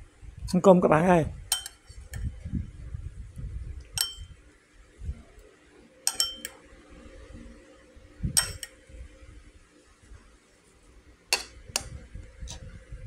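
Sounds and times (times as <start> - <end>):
metal spoon clinking against bowl: 1.5 - 2.2, 4.0 - 4.3, 6.1 - 6.6, 8.4 - 8.8, 11.3 - 11.9.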